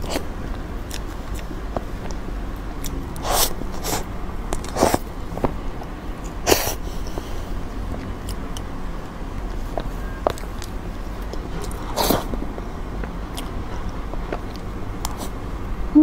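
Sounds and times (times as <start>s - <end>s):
wet mouth eating sounds: 0.0s - 2.2s, 2.8s - 5.1s, 9.5s - 15.4s
low steady hum: 0.0s - 16.0s.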